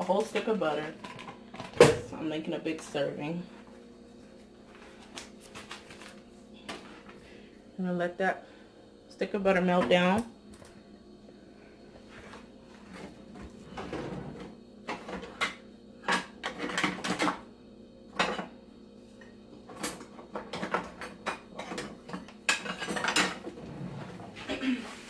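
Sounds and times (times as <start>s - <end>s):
pots lids and utensils clinking: 20.5s - 23.5s.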